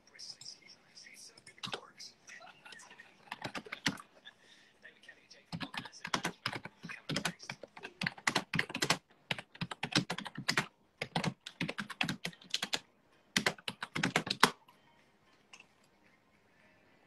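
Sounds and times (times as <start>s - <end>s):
keyboard typing: 3.2s - 4.1s, 5.5s - 14.6s.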